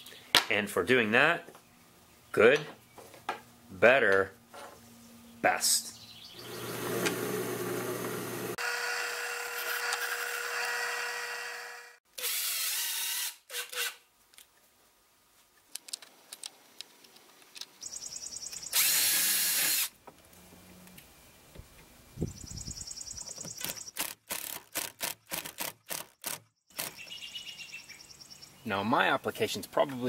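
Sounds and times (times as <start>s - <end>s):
cordless drill running: 6.4s - 13.9s, 18.7s - 19.9s.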